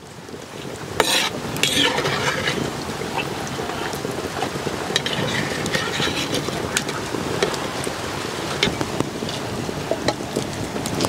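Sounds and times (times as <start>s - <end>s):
hot oil sizzling in a pan: 0.0s - 11.0s.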